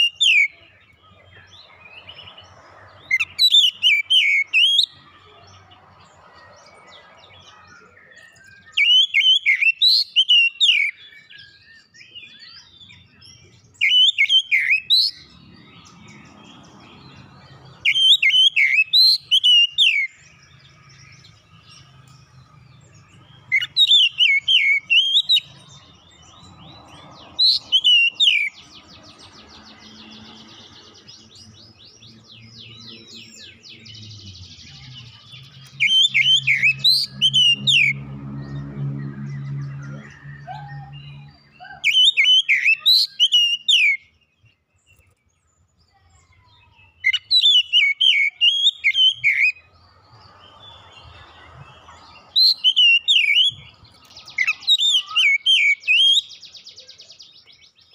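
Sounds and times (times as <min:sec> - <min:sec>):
bird singing whistled notes: 0:00.0 - 0:57.9.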